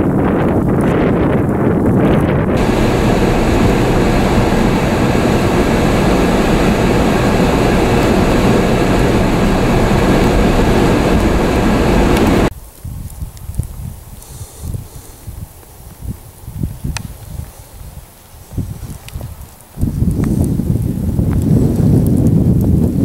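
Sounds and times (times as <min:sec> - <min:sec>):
road and wind noise: 0:00.0 - 0:12.5
faint steady hum: 0:02.6 - 0:12.5.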